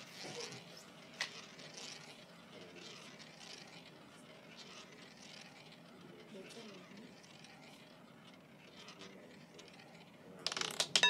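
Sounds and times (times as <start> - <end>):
roulette ball whirring: 0.0 - 11.0
roulette ball click: 10.4 - 11.0.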